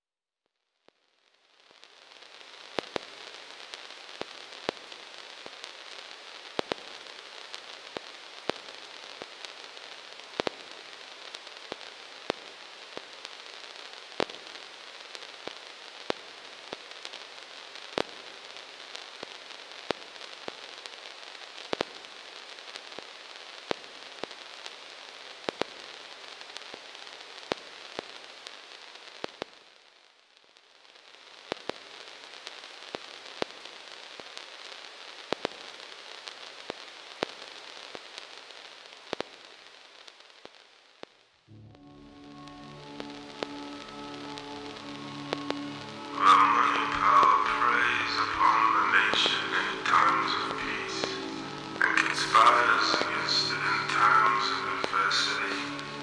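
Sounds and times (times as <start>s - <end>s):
record surface hiss: 0.5s - 56.0s
sharp clicks and pops: 40.4s - 54.1s.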